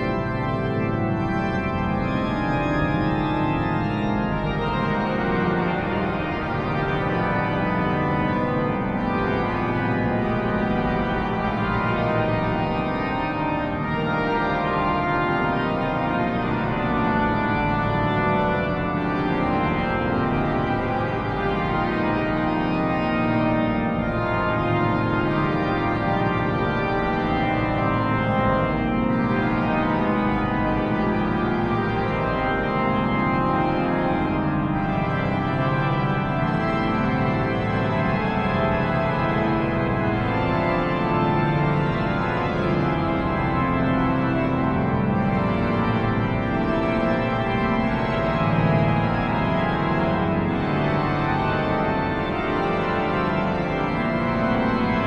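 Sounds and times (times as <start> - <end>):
pipe organ chords: 0.0 - 55.0.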